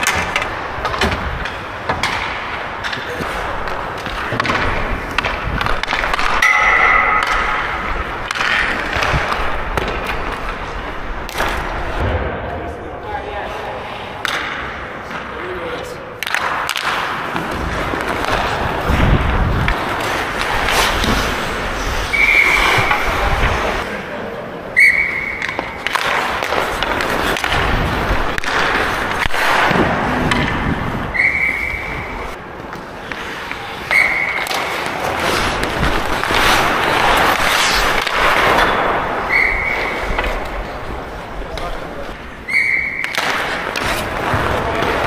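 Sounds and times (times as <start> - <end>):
skate blades scraping ice: 0.0 - 12.0, 16.2 - 24.1, 24.9 - 45.0
sticks and puck clacking: 0.0 - 12.4, 13.6 - 45.0
short high whistle-like tones: 22.1 - 22.8, 24.8 - 25.5, 31.1 - 32.1, 39.3 - 40.0, 42.5 - 43.1.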